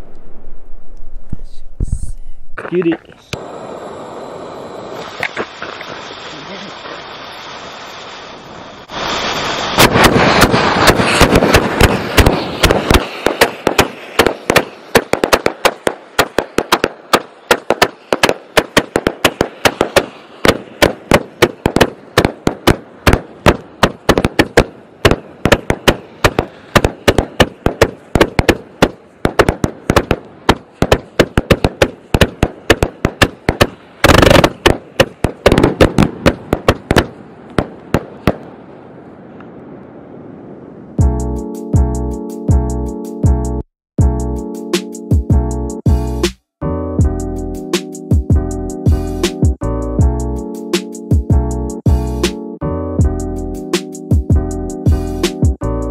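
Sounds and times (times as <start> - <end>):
fireworks firing sharp bangs: 8.8 - 38.8.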